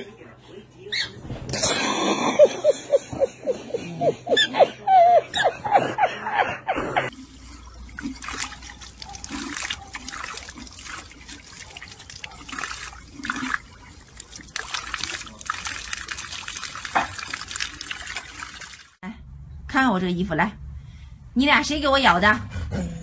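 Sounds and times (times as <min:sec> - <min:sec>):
man laughing: 0:01.6 - 0:07.1
fountain water trickling and splashing: 0:07.1 - 0:19.0.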